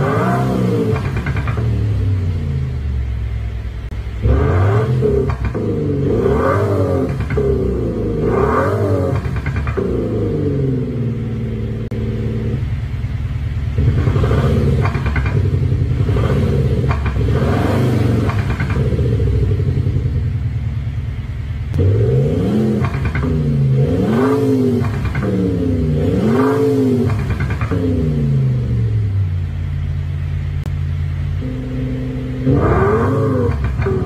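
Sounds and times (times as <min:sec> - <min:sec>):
synthesized exhaust rumble and revs: 0:00.0 - 0:34.0
crackling exhaust pops: 0:00.9 - 0:01.9, 0:05.2 - 0:05.8, 0:06.9 - 0:07.7, 0:09.0 - 0:10.2, 0:14.7 - 0:15.7, 0:16.8 - 0:19.1, 0:22.7 - 0:23.5, 0:24.7 - 0:25.5, 0:26.7 - 0:28.0, 0:33.4 - 0:34.0.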